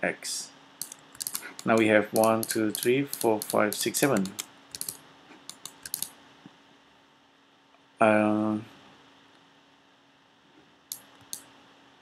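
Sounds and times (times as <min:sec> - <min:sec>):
computer keys clicking: 0:00.8 - 0:06.1, 0:10.9 - 0:11.5.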